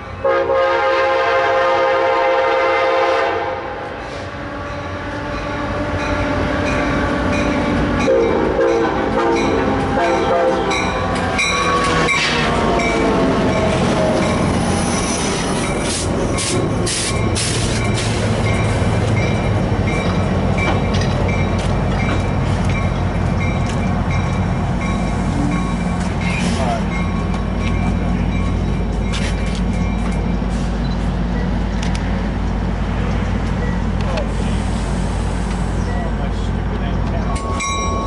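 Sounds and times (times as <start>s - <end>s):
train horn: 0.2s - 6.1s, 8.0s - 12.5s
train wheels on rails: 3.7s - 38.0s
brakes squealing: 10.7s - 32.3s.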